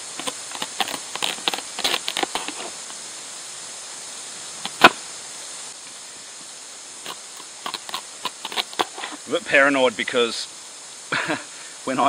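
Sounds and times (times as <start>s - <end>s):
knife scraping pumpkin skin: 0.0s - 2.9s, 4.7s - 5.0s, 7.0s - 9.2s.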